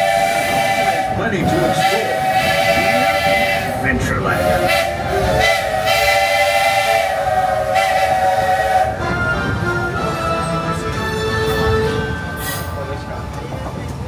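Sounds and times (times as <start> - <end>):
steam whistle blowing: 0.0 - 9.1
train rumbling: 0.0 - 14.0.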